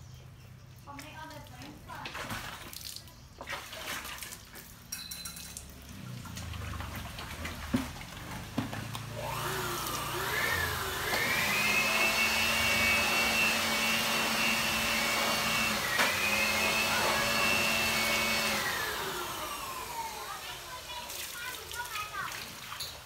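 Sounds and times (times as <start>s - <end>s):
electric motor whine: 9.0s - 20.7s.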